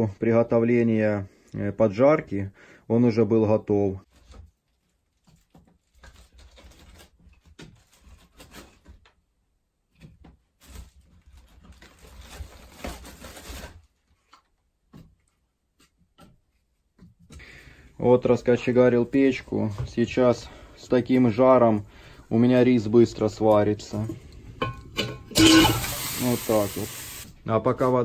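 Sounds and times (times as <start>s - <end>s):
plastic sack rustling: 10.6s - 14.0s.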